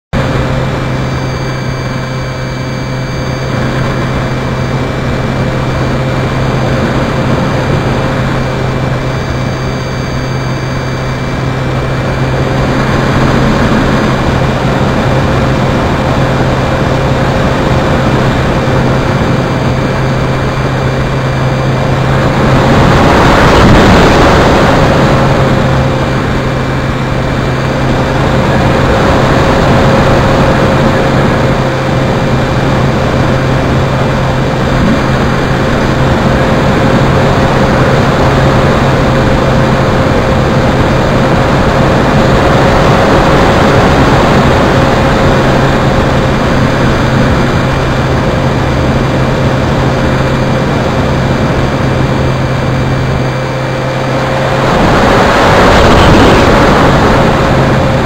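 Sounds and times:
model airplane motor hum: 0.2s - 58.0s
wind rush on microphone: 0.2s - 58.0s.

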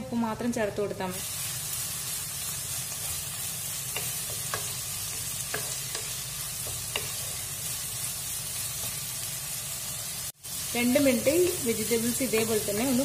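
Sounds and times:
vegetables sizzling in hot oil: 0.1s - 13.0s.

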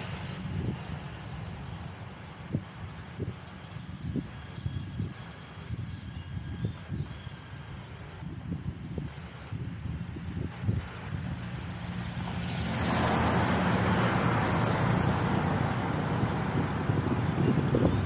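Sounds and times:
motor vehicle passing: 0.0s - 4.5s, 9.2s - 18.0s
wind buffeting microphone: 0.0s - 18.0s.

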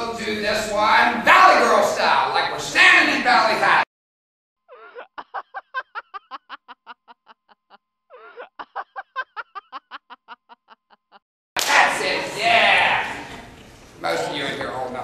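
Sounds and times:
laughing sound effect: 4.7s - 11.2s.

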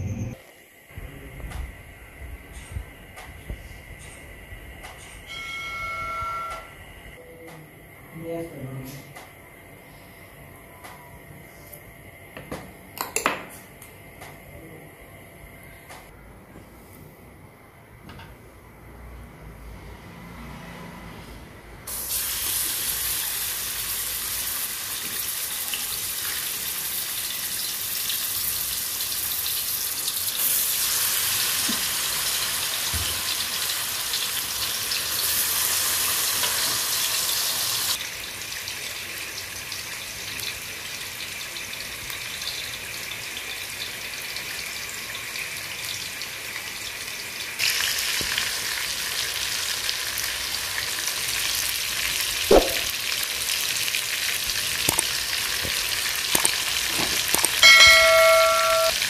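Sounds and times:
fish sizzling in hot oil: 21.9s - 59.0s.

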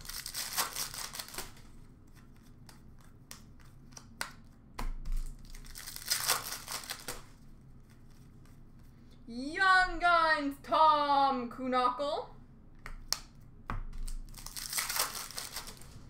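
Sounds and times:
wrappers tearing and crinkling: 0.0s - 1.7s, 5.2s - 8.1s, 14.0s - 16.0s.

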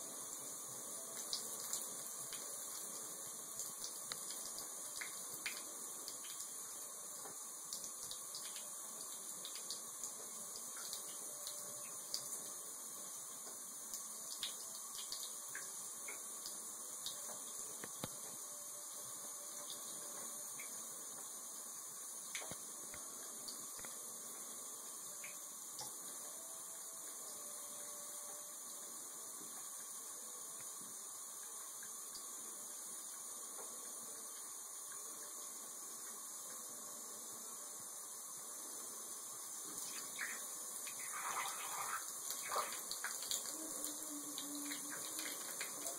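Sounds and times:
water trickling from spout: 39.8s - 45.9s.

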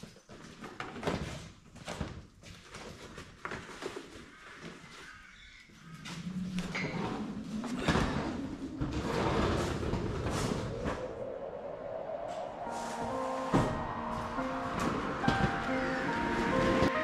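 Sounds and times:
hose dragged across brick floor: 8.8s - 11.0s.

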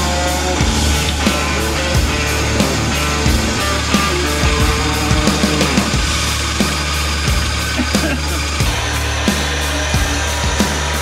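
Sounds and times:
loud rock music: 0.0s - 11.0s.

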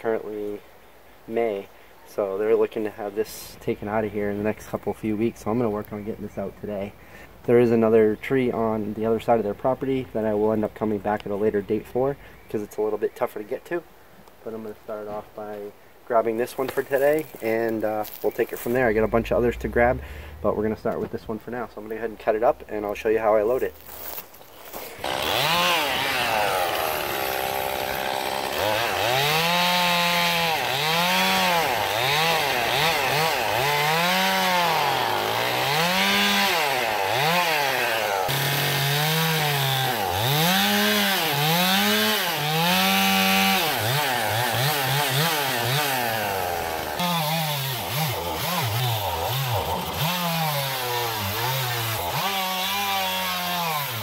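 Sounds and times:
chainsaw cutting wood: 23.7s - 54.0s.

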